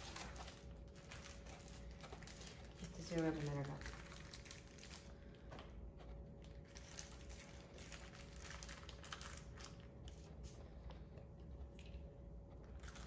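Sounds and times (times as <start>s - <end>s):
plastic bags crinkling: 0.0s - 5.5s, 6.4s - 10.3s.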